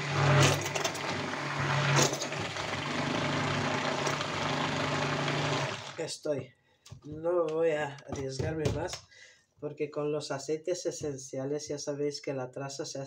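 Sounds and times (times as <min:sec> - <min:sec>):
stick blender motor humming: 0:00.0 - 0:06.0.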